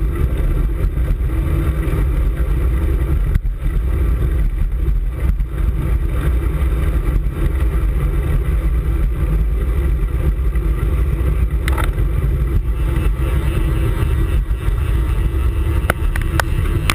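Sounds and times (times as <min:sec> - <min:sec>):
road noise: 0:00.0 - 0:16.9
wind buffeting microphone: 0:00.0 - 0:16.9.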